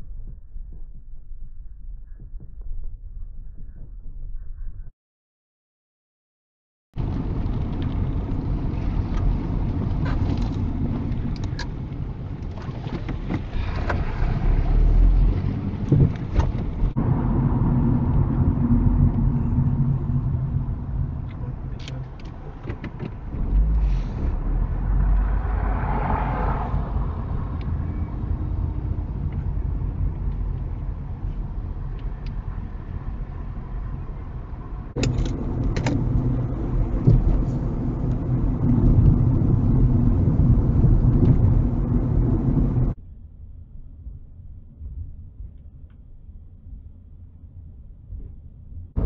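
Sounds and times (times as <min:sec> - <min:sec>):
car driving heard from inside: 0:07.0 - 0:43.4.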